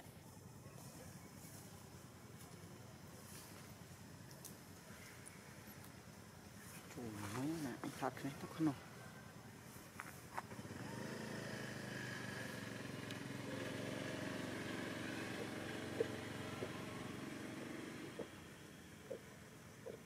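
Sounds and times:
vehicle engine running: 9.6s - 20.0s
faint ticks: 13.0s - 13.2s.

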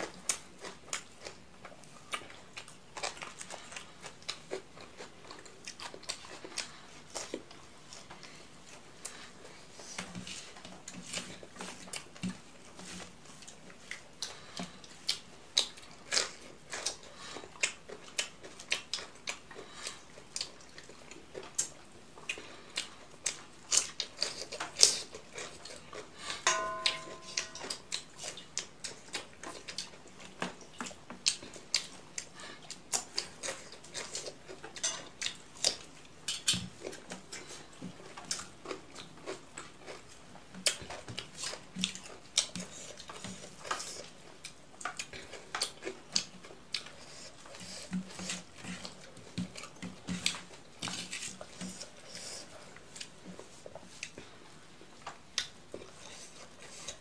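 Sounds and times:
chewing and lip smacks: 0.0s - 12.4s, 13.0s - 26.4s, 27.1s - 57.0s
cucumber crunch: 9.8s - 54.2s.

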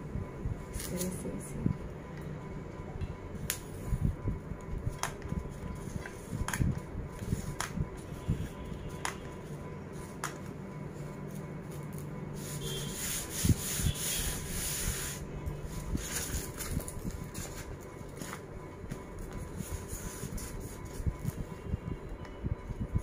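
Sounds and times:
wrapping paper rustling: 11.3s - 21.5s.

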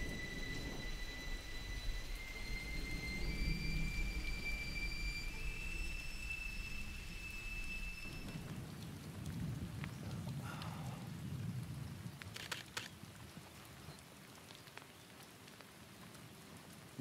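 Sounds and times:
low rumble of thunder: 0.0s - 12.4s
rain falling: 0.0s - 17.0s
sharp clicks: 12.2s - 12.9s.

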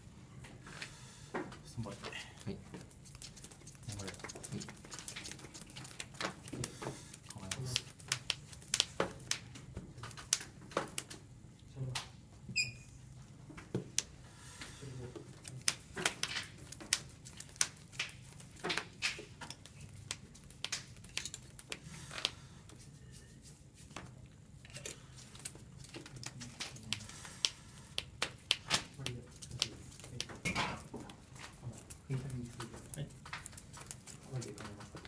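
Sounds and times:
low room hum: 0.0s - 35.0s
cards clicking and tapping: 2.7s - 11.2s, 15.4s - 22.4s.

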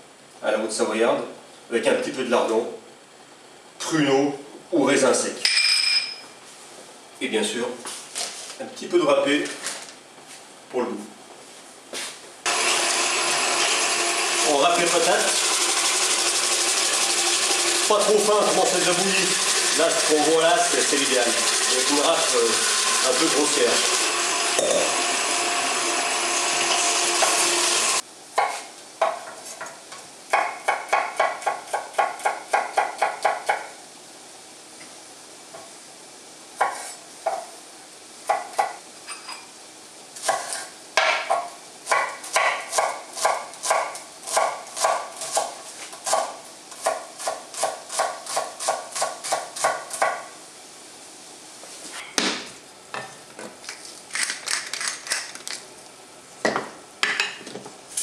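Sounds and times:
stand mixer running: 12.5s - 28.0s
knife chopping on wooden board: 30.3s - 33.7s, 36.6s - 37.5s, 40.2s - 50.2s.

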